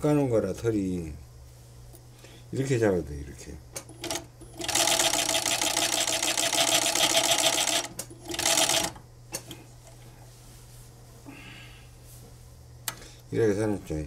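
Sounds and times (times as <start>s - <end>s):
sewing machine stitching: 4.0s - 9.0s.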